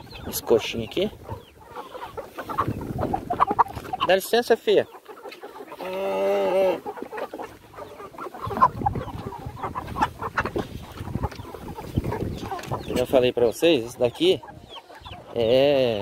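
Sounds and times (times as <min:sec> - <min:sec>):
chickens clucking: 0:00.0 - 0:16.0
chicken long drawn-out call: 0:01.2 - 0:04.0, 0:05.0 - 0:11.8
wind rumble on microphone: 0:02.5 - 0:04.1, 0:08.4 - 0:13.1.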